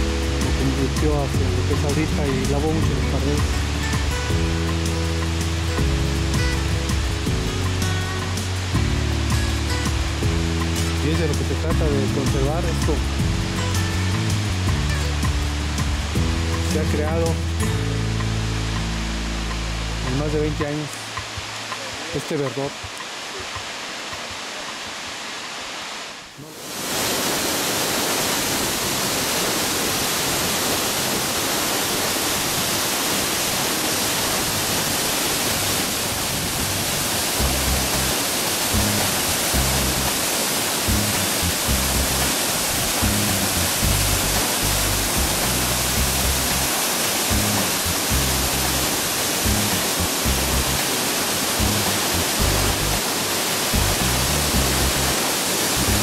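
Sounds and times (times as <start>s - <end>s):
waterfall rushing: 0.0s - 56.0s
low rumbling: 36.6s - 38.2s, 40.9s - 50.8s, 51.6s - 53.0s, 53.8s - 55.2s.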